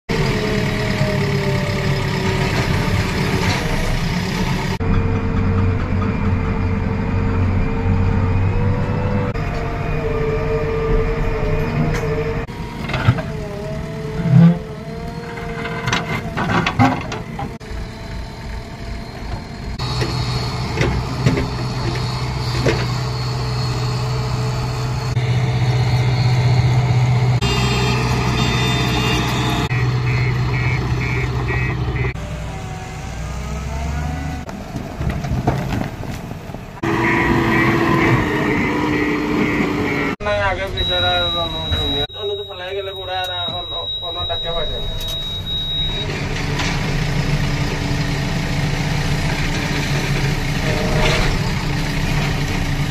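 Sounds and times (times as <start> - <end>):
diesel machinery engine: 0.1 - 52.9
short repeated beeps: 28.4 - 31.2, 40.6 - 46.1.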